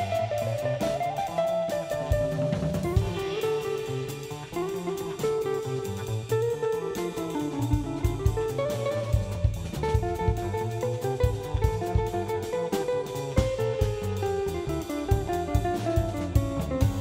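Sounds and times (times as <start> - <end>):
drum kit with cymbals: 0.0 - 17.0
electric guitar: 0.0 - 17.0
plucked double bass: 7.6 - 17.0.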